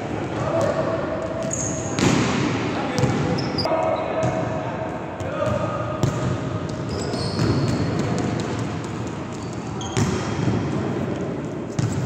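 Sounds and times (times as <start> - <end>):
sneakers squeaking on court: 1.4 - 2.3, 2.9 - 3.7, 6.0 - 11.0, 11.7 - 12.0.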